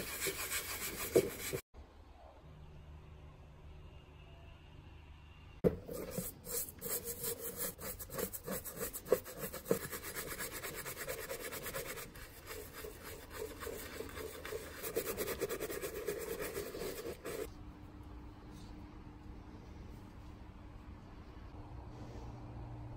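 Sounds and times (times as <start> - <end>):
paintbrush scrubbing metal parts: 0.0 - 1.6, 5.7 - 17.5.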